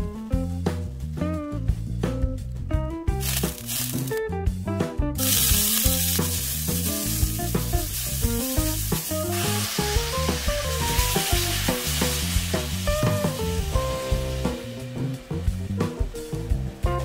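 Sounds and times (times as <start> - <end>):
background music: 0.0 - 17.0
onions sizzling in oil: 3.2 - 4.2, 5.2 - 15.8.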